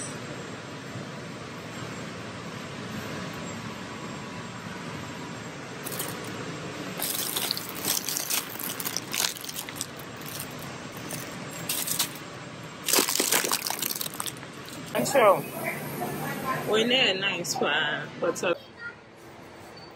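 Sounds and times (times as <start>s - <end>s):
steady background hum: 0.0s - 19.9s
plastic bags crinkling: 5.8s - 6.3s, 7.0s - 15.0s.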